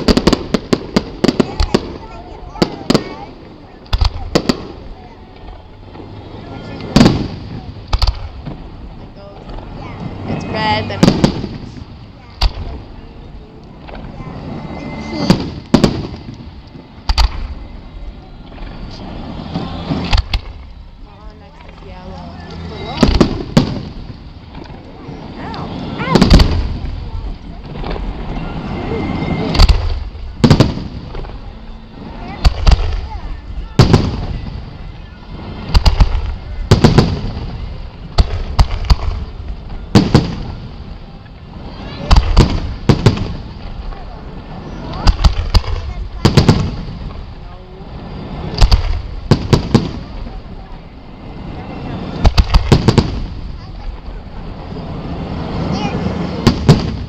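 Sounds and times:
firework shells booming: 0:00.0 - 0:13.0, 0:15.0 - 0:17.7, 0:19.2 - 0:20.8, 0:22.8 - 0:47.5, 0:48.1 - 0:50.6, 0:52.0 - 0:54.2, 0:56.1 - 0:57.0
firework shells bursting: 0:06.8 - 0:08.8, 0:15.1 - 0:17.6, 0:19.4 - 0:20.8, 0:35.6 - 0:41.0.

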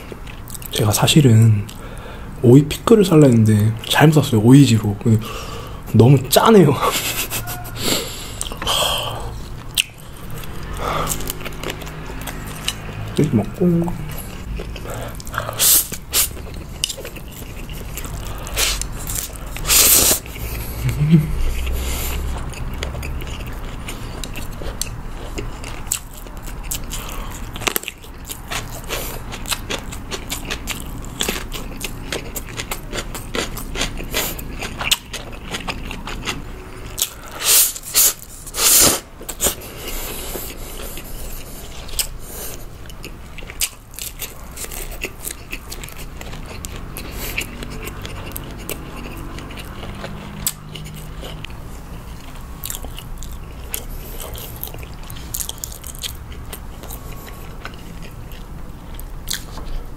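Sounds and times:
wet chewing clicks: 0:09.4 - 0:59.9
slurping noodles: 0:37.2 - 0:42.7.

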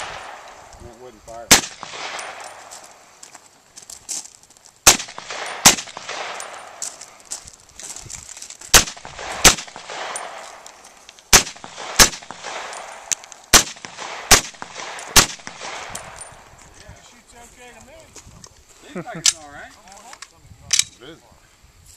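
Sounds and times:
rifle shots echoing: 0:00.0 - 0:00.7, 0:01.4 - 0:03.1, 0:04.8 - 0:07.2, 0:08.7 - 0:16.4.

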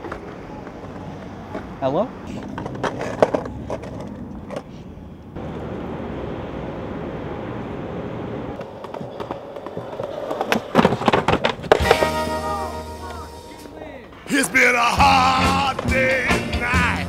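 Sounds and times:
skateboard clacks and impacts: 0:00.0 - 0:01.8, 0:02.4 - 0:04.7, 0:08.6 - 0:12.4
skateboard wheels rolling on pavement: 0:00.0 - 0:17.0.

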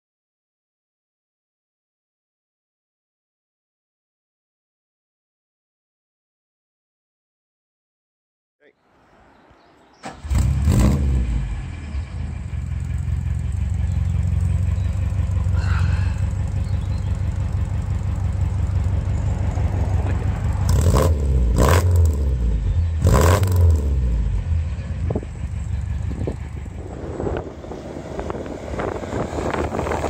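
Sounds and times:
car engine starting and idling: 0:09.9 - 0:30.0
engine throttle blips: 0:10.0 - 0:30.0.

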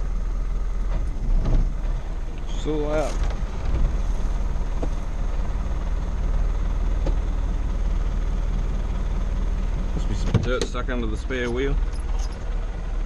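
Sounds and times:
truck engine rumbling: 0:00.0 - 0:13.0
faint short squeaks: 0:11.5 - 0:12.5.

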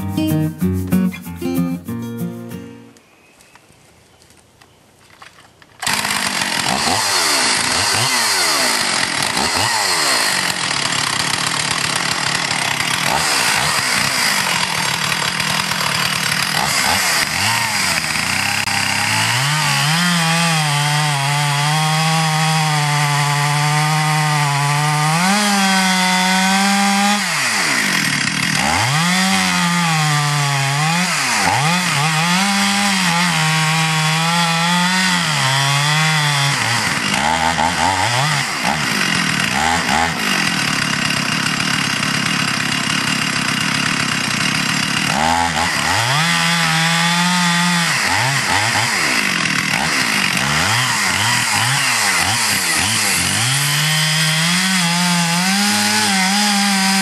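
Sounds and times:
chainsaw cutting wood: 0:05.8 - 0:57.0.

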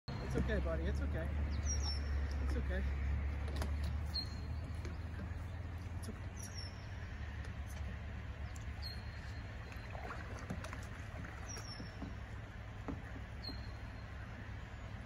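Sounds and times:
bird chirping: 0:00.1 - 0:15.0
steady low rumble: 0:00.1 - 0:15.0
faint clicks: 0:07.4 - 0:08.8.

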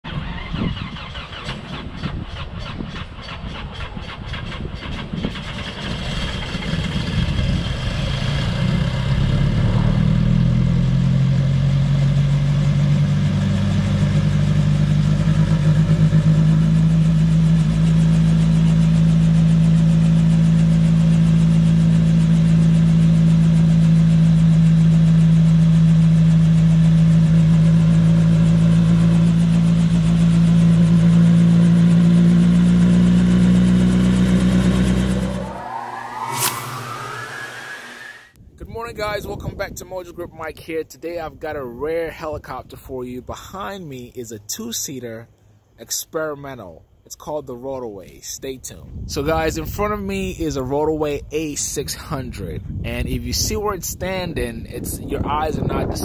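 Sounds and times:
helicopter engine running: 0:01.1 - 0:09.5, 0:13.6 - 0:36.1.

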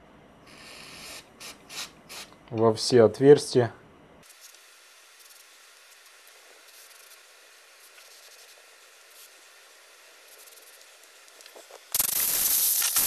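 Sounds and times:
steady low hiss: 0:00.0 - 0:13.0
aerosol spray hisses: 0:05.2 - 0:13.0.

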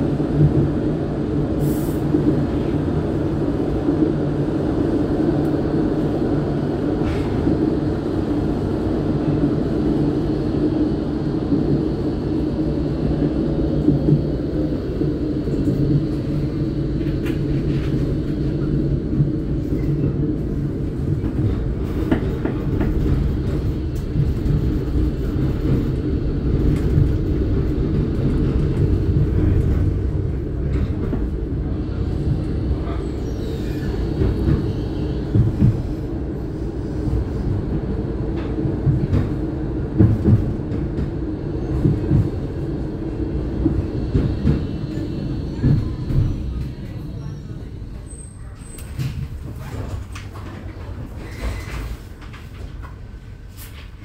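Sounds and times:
tram rumbling on rails: 0:00.0 - 0:54.0
tram wheels clicking and knocking: 0:13.1 - 0:36.4, 0:37.1 - 0:46.9.

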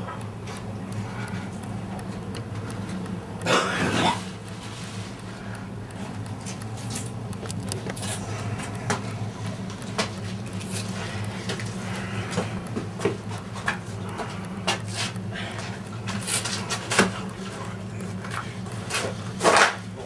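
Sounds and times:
steady low hum: 0:00.0 - 0:20.0.

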